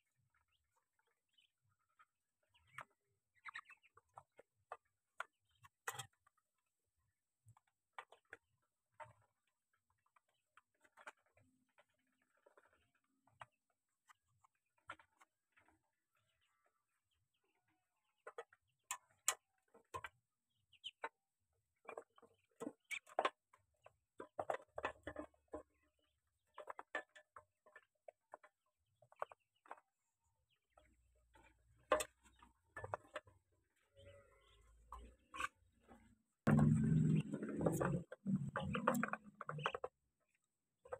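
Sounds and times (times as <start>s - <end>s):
duck bills tapping metal tray: 36.5s - 39.9s.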